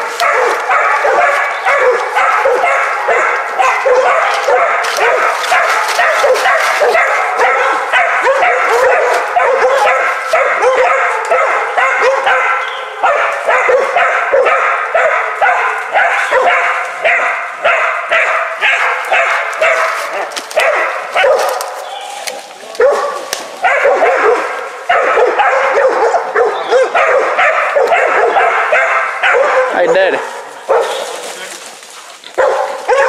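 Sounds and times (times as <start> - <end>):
dogs barking and yelping: 0.0 - 31.5, 32.2 - 33.0.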